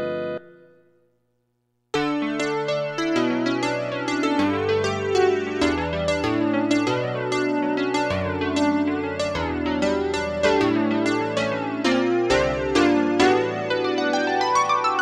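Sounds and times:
synthesizer chords over bass notes: 0:02.0 - 0:15.0.

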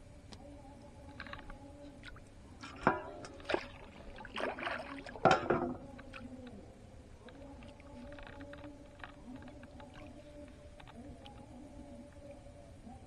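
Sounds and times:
faint steady hum: 0:00.0 - 0:13.0
water splashing and dripping: 0:02.0 - 0:05.3.

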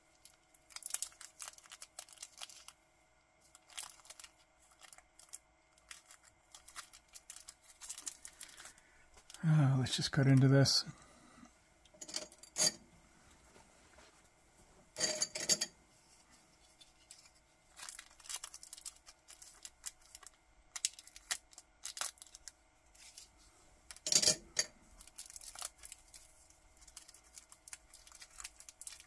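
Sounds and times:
plastic bag crinkling: 0:00.1 - 0:02.8, 0:03.4 - 0:10.6, 0:16.8 - 0:24.1, 0:24.9 - 0:29.0
handling rustle: 0:16.0 - 0:24.2.

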